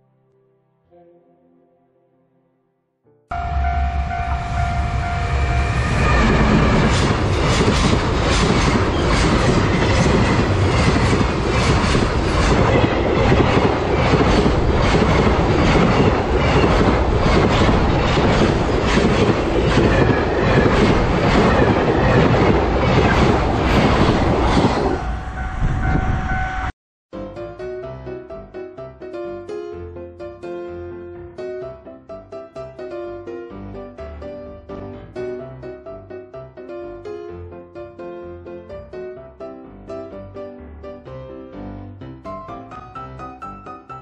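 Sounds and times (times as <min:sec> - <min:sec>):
level crossing warning bell: 0:03.3 - 0:05.9, 0:25.0 - 0:26.7
train wheels clattering on rails: 0:05.9 - 0:25.0.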